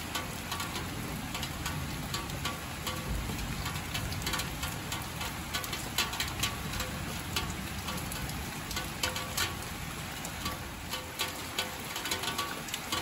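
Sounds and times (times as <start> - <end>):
close raindrops striking: 0.0 - 13.0
rain falling: 0.0 - 13.0.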